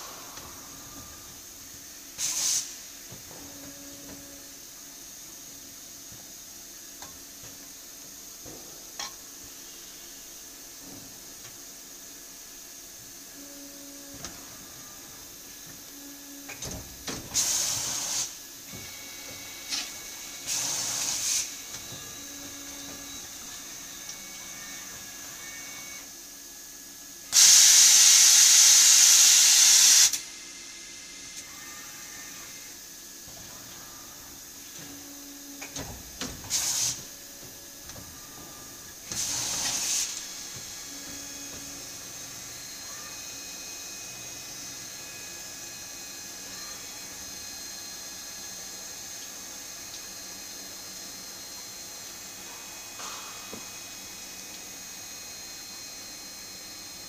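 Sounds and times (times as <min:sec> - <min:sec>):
faint machine hum: 0:00.0 - 0:27.4, 0:30.1 - 0:57.0
loud bursts of hiss: 0:02.2 - 0:02.8, 0:17.3 - 0:18.4, 0:20.4 - 0:21.6, 0:27.4 - 0:30.2, 0:36.5 - 0:37.0, 0:39.1 - 0:40.6.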